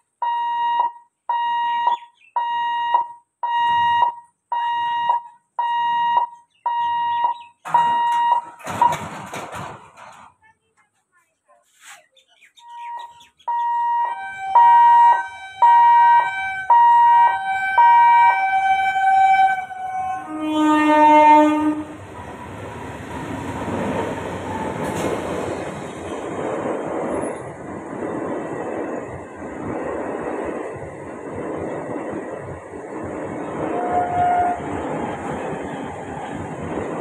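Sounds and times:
train rumbling over rails: 7.6s - 10.6s, 14.1s - 37.0s
two-tone train horn: 13.6s - 22.5s, 33.7s - 34.8s.

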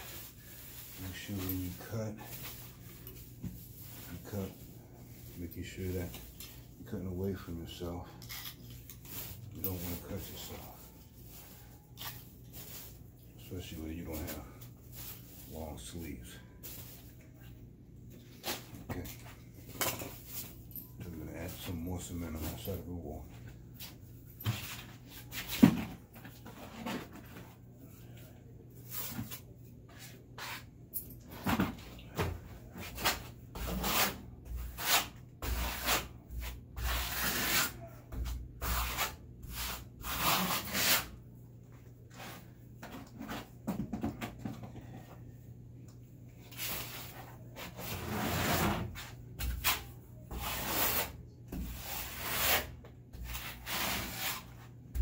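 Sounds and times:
trowel scraping on wall: 32.9s - 41.2s, 46.6s - 55.0s.

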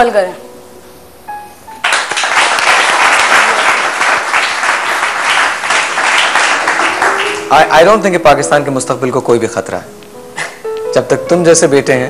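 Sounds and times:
audience applauding: 1.8s - 7.9s.

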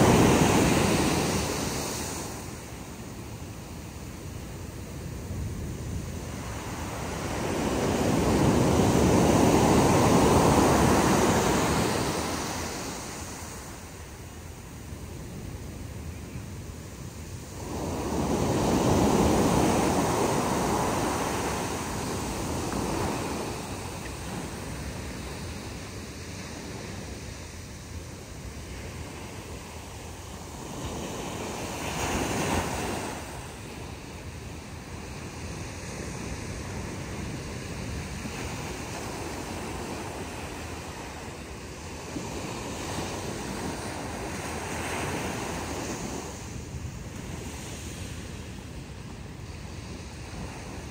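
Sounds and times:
ocean surf breaking: 0.0s - 3.0s, 5.3s - 14.3s, 17.2s - 27.8s, 28.6s - 35.0s.

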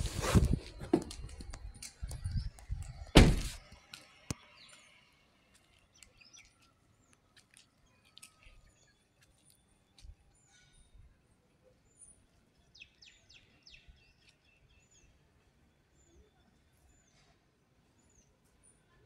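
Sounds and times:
small birds chirping: 0.2s - 19.0s
loud thump: 3.2s - 3.6s.

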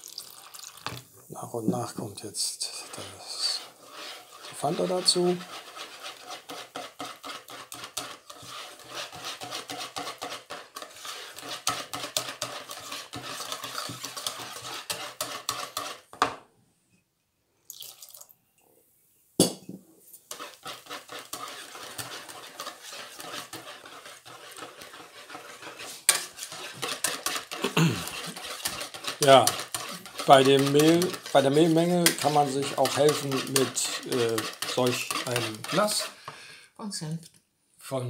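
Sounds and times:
whisk beating batter in bowl: 1.7s - 16.1s, 20.3s - 36.2s.

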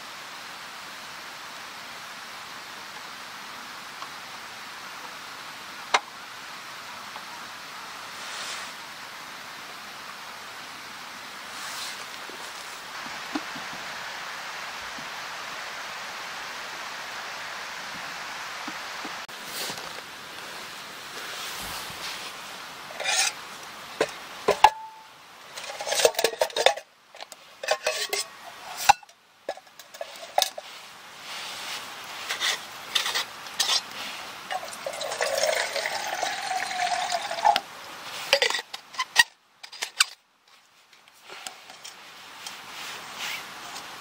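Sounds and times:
metal bottle clinking on mug: 24.5s - 26.8s, 27.6s - 29.1s
liquid pouring into mug: 34.5s - 37.6s.

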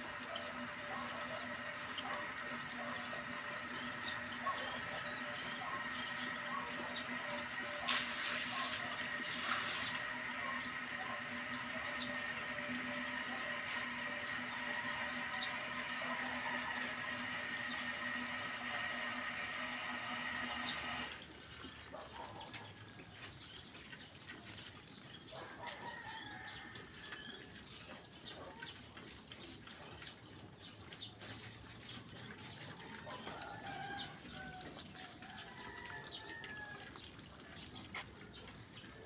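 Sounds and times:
pigs chewing and snuffling: 21.2s - 39.0s.

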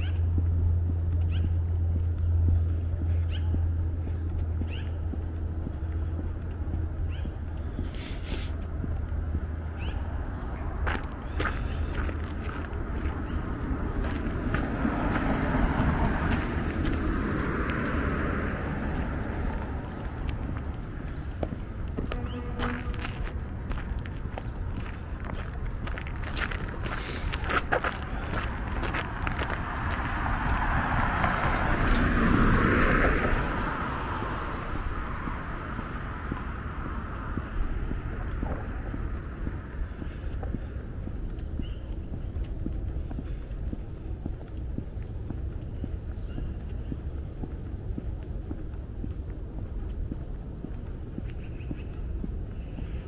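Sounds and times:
car passing: 0.0s - 53.0s
car passing by: 12.8s - 23.7s, 28.0s - 40.0s.

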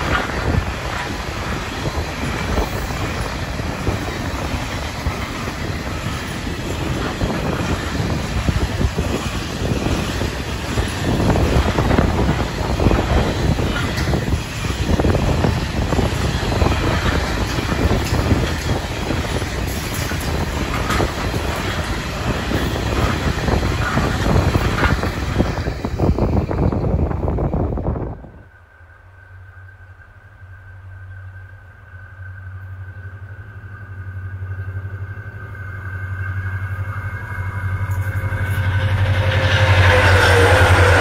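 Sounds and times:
wheels clicking over rail joints: 0.0s - 27.1s
train wheels rushing on rail: 0.0s - 41.0s.

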